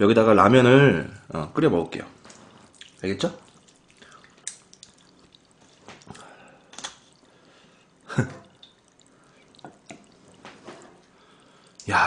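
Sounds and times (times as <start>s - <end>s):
broth dripping and splashing: 2.2s - 12.0s
tongs clicking: 3.6s - 7.2s.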